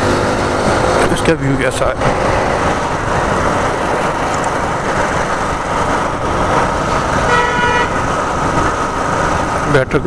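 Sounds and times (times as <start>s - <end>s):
wind and road noise: 0.0s - 10.0s
vehicle horn: 7.2s - 8.0s.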